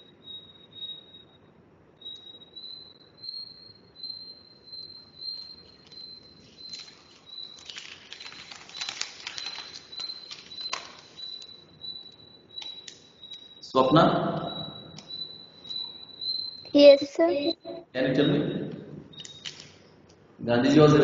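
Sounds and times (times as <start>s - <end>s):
high chirping tone pulses: 0.0s - 1.4s, 2.0s - 7.6s, 9.5s - 19.4s
crackling noise: 5.2s - 13.6s.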